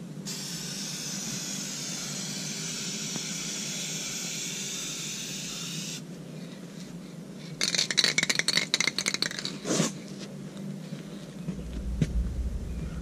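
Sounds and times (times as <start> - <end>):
spray burst: 0.3 - 6.0
spray can ball rattling: 7.6 - 10.0.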